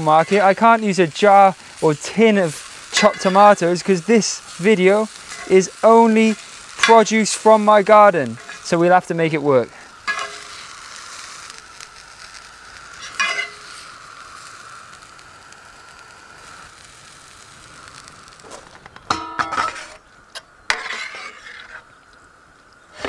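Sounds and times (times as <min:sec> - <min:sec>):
beans sizzling in a pan: 0:00.0 - 0:23.0
utensil scraping a pan: 0:02.9 - 0:03.6, 0:05.1 - 0:07.1, 0:19.1 - 0:22.0.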